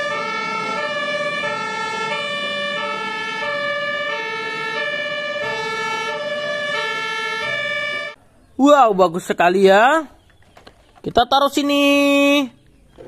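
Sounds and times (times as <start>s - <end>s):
two-tone emergency siren: 0.0s - 8.2s.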